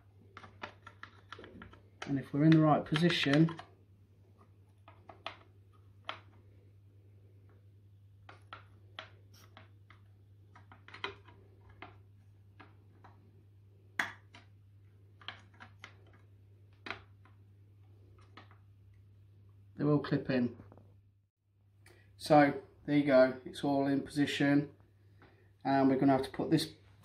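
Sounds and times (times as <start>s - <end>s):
plastic valve parts clicking: 0.3s - 3.7s, 8.2s - 13.2s.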